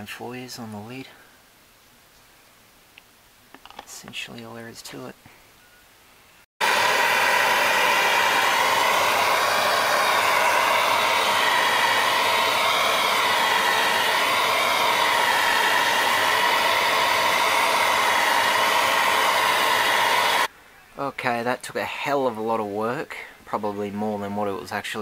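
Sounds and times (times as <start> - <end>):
gas torch hissing: 6.6 - 20.5.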